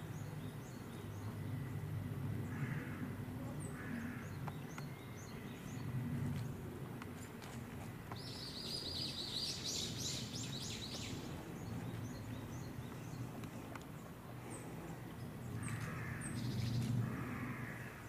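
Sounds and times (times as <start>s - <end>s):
low outdoor background hum: 0.0s - 18.0s
songbird trilling: 8.2s - 13.2s.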